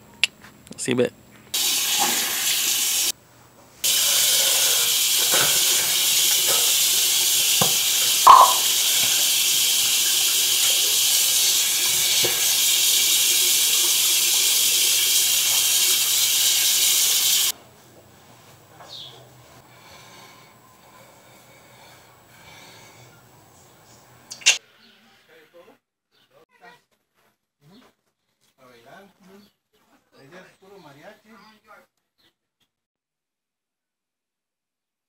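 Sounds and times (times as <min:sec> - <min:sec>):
sink tap running: 0:01.6 - 0:03.1, 0:03.8 - 0:17.5
water splashing: 0:07.6 - 0:09.3.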